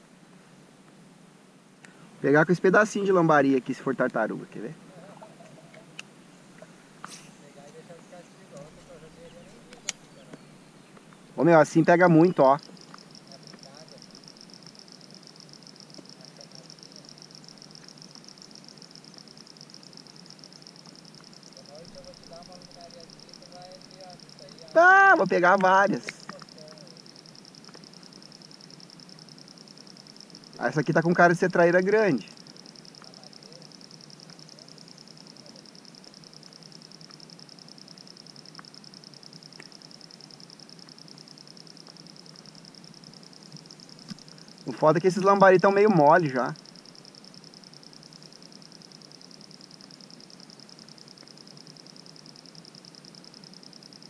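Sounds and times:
insects chorus pulsing: 0.0s - 54.0s
soft low background noise: 0.0s - 54.0s
faint ticks: 1.8s - 2.1s, 5.4s - 11.4s, 12.2s - 24.8s, 25.4s - 54.0s.

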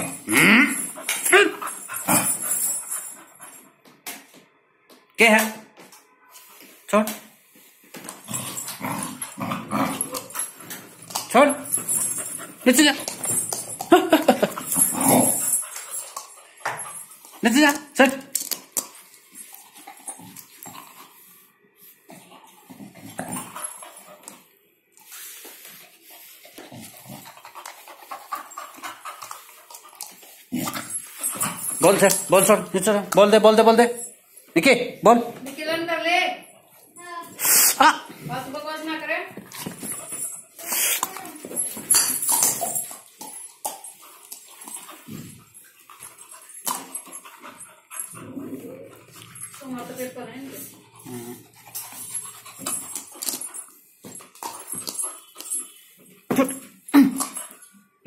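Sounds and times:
dog panting: 26.5s - 30.3s, 42.3s - 53.7s.

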